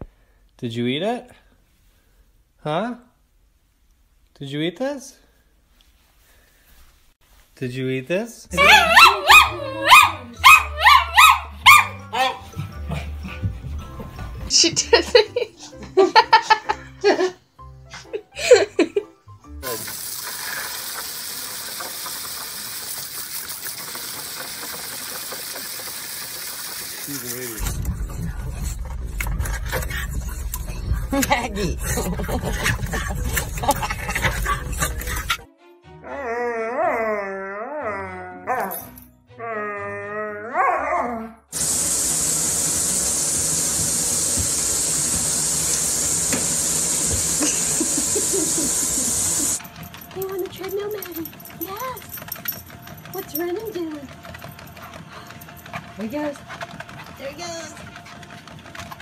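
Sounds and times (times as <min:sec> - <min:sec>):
dog howling: 0:08.5 - 0:12.4, 0:36.0 - 0:38.7
water spraying hiss: 0:19.6 - 0:27.8, 0:41.6 - 0:49.6
water running into bathtub: 0:19.6 - 0:35.4, 0:41.5 - 0:59.0.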